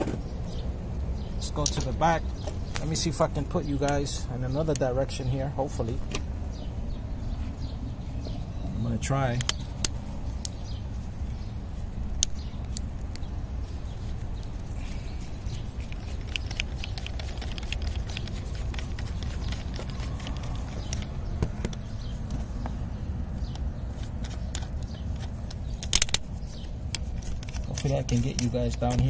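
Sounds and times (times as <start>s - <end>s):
camera handling rumble: 9.4s - 29.0s.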